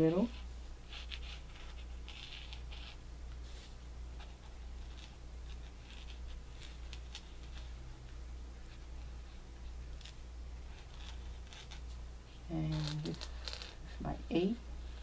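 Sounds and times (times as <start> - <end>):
marker scratching on paper: 0.0 - 7.8, 10.7 - 12.0.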